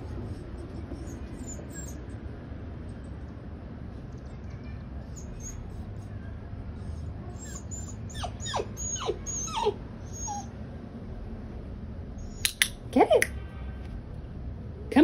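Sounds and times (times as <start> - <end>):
dog whimpering: 1.0 - 2.1, 5.1 - 6.1, 6.7 - 10.5.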